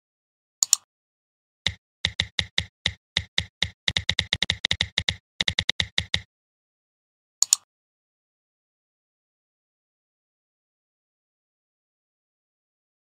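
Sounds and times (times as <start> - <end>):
mouse click: 0.6 - 0.8, 1.7 - 6.3, 7.4 - 7.7
keyboard typing: 1.7 - 6.3.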